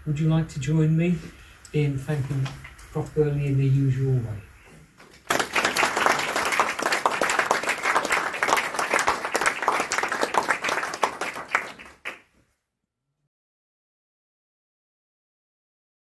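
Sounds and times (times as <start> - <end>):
audience applauding: 5.2 - 12.3.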